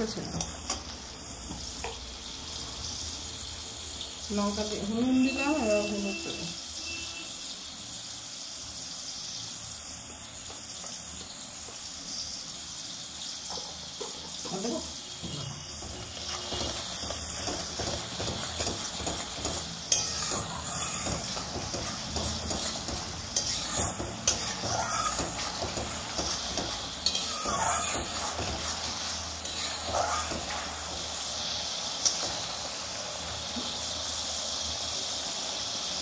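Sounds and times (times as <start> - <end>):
paste sizzling in hot oil: 0.0 - 36.0
spatula tapping pan: 15.8 - 30.7
metal spatula scraping pan: 15.8 - 31.0.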